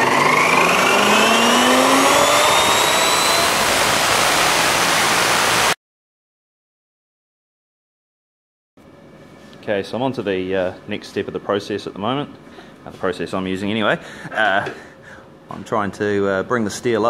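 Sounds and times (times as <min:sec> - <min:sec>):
chop saw grinding through steel: 0:00.0 - 0:05.4.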